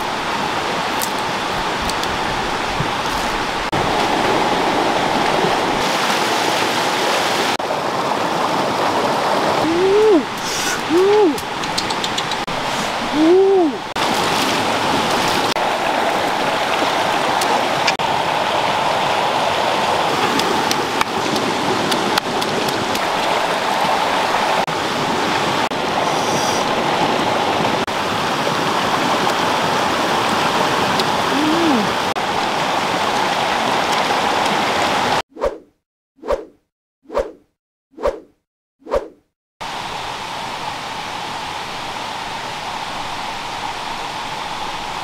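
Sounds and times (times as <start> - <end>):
stream rushing over rocks: 0.0 - 35.2.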